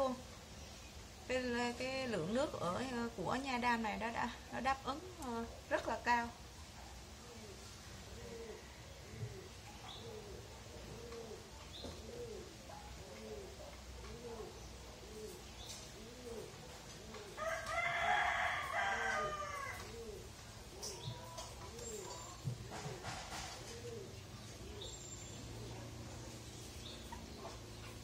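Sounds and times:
dove cooing: 1.8s - 28.0s
rooster crowing: 17.4s - 20.0s.

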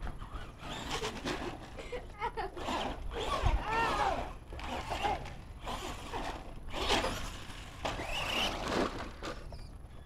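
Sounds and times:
rc truck motor whine: 0.0s - 1.7s, 2.6s - 10.0s
tyre noise on asphalt: 3.5s - 10.0s.

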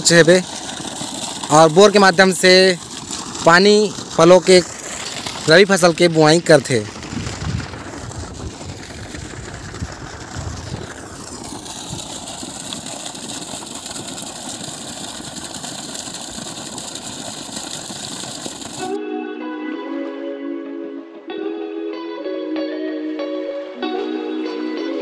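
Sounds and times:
water gushing and splashing: 0.0s - 19.0s.

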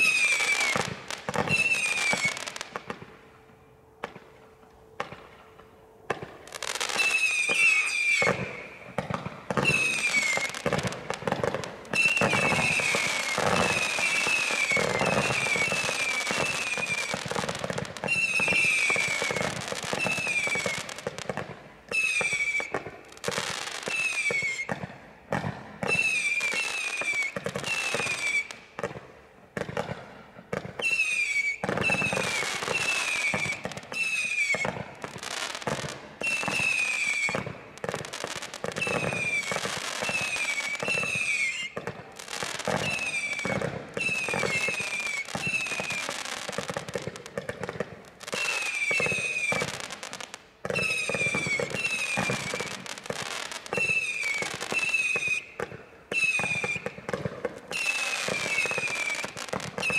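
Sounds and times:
short falling whistles: 1.5s - 2.4s, 6.8s - 8.8s, 12.0s - 17.1s, 21.9s - 22.7s, 30.8s - 34.8s, 36.2s - 37.4s, 38.8s - 41.8s, 53.7s - 57.0s.

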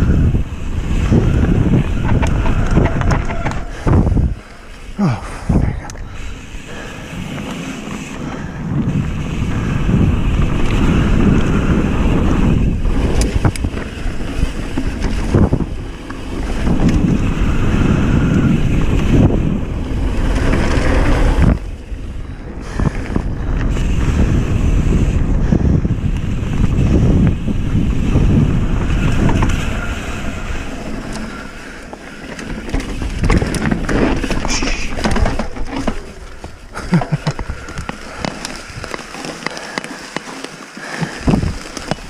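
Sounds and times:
bike tyres rumbling on dirt: 0.0s - 42.0s
wind buffeting microphone: 0.0s - 42.0s
sharp clacks from bumps: 0.8s - 4.8s, 12.6s - 21.8s, 27.6s - 42.0s.

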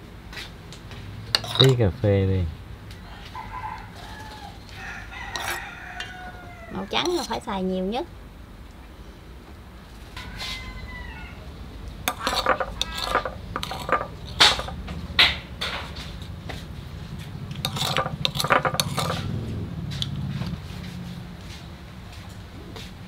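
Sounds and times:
spoons clinking on steel bowl: 1.3s - 1.8s, 5.3s - 5.6s, 12.1s - 14.8s, 17.6s - 19.2s.

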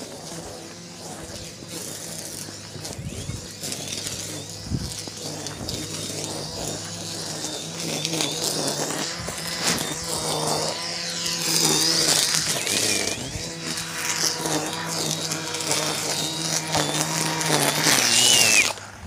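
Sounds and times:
string trimmer motor hum: 0.0s - 19.0s
wind noise on microphone: 0.3s - 10.7s, 11.3s - 15.3s.

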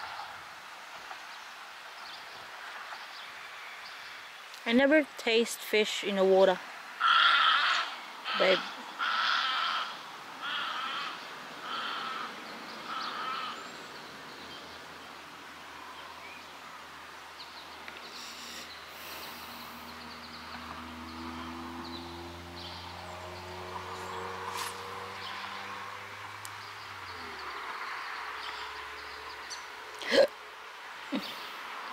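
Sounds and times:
outdoor background hiss: 0.0s - 31.9s
crows cawing: 7.0s - 13.7s, 20.6s - 21.8s
distant engine humming: 17.6s - 30.2s.

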